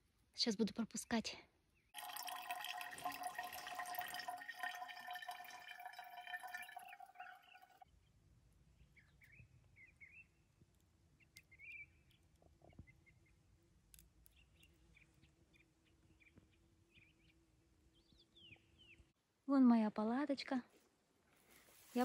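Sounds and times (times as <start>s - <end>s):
small birds chirping and trilling: 11.2s - 13.4s.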